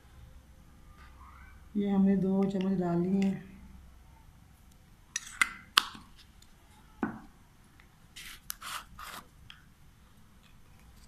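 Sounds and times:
spoon scraping powder: 8.2 - 9.3.

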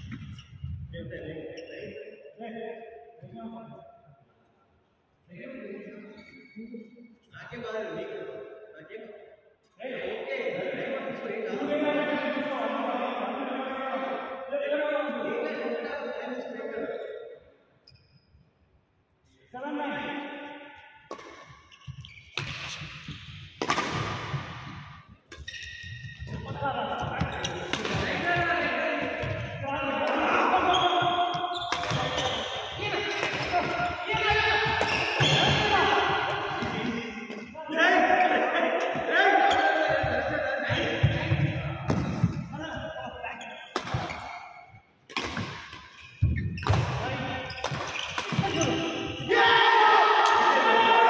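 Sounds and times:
racket hitting shuttlecock: 21.1 - 26.4, 27.6 - 28.3, 31.7 - 32.2, 33.2 - 35.5, 43.7 - 45.9, 47.6 - 48.8
racquets striking shuttlecock: 23.6 - 24.2, 45.1 - 45.9.

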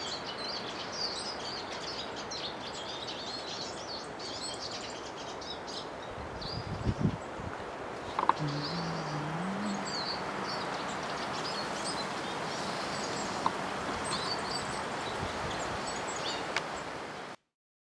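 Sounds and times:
outdoor background hiss: 0.0 - 17.5
low hum rising in pitch: 8.4 - 11.6.

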